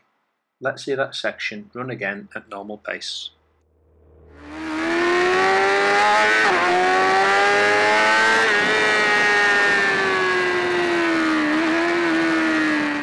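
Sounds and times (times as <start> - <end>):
motorcycle engine revving: 3.8 - 13.0.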